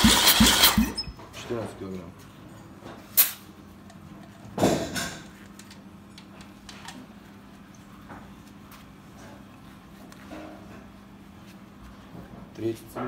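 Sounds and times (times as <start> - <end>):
short sharp air bursts: 0.0 - 1.0, 3.2 - 3.5.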